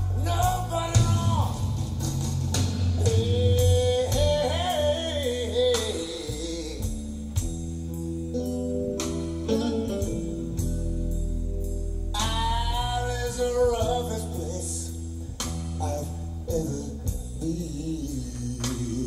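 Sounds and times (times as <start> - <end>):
person singing: 0.0 - 1.7, 3.0 - 7.4, 12.2 - 15.0, 15.8 - 19.0
plucked guitar: 0.0 - 19.0.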